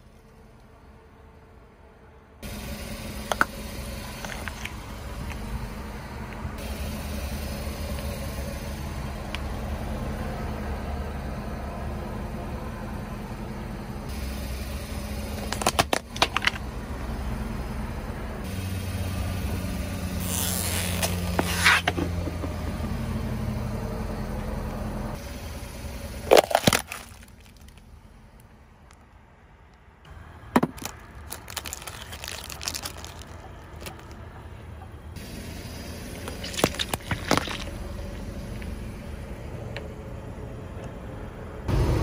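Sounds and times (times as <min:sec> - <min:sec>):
car engine running low: 0:00.0 - 0:42.0
plastic toys cracking under tyre: 0:15.4 - 0:16.6, 0:26.2 - 0:27.8, 0:30.5 - 0:34.2, 0:36.2 - 0:37.7.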